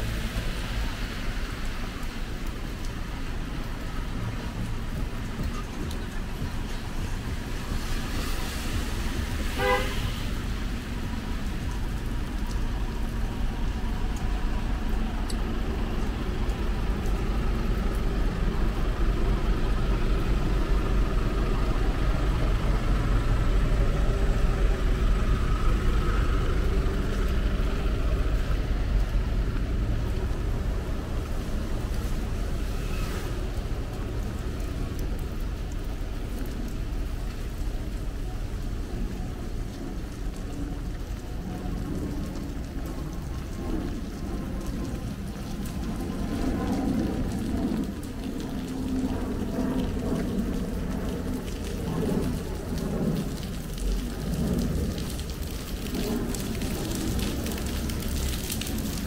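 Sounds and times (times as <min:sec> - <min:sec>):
heavy rain: 0:00.0 - 0:59.0
traffic on wet road: 0:00.0 - 0:59.0
car horn toot: 0:09.6 - 0:10.1.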